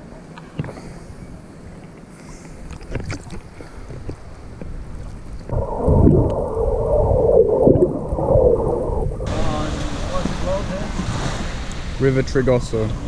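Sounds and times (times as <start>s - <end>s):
water lapping and splashing: 1.6s - 13.0s
muffled underwater rush: 2.7s - 13.0s.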